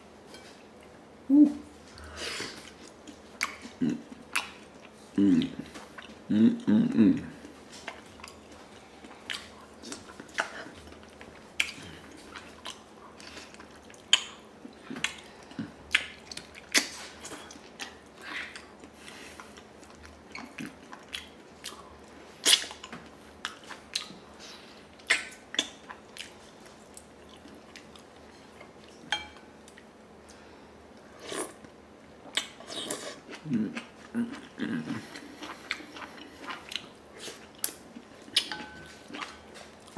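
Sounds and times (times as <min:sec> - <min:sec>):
chewing and lip smacks: 0:07.4 - 0:24.2, 0:24.9 - 0:30.4, 0:31.4 - 0:39.9.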